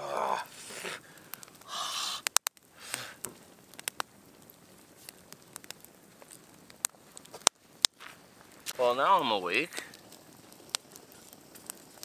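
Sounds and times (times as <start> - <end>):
campfire crackling: 0.0 - 12.0
man breathing and sniffing: 0.5 - 3.3.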